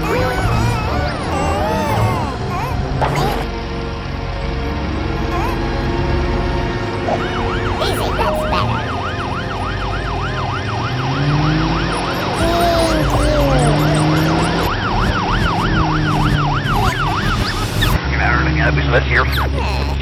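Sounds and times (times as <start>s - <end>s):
background music: 0.0s - 17.5s
emergency siren warbling: 6.9s - 18.0s.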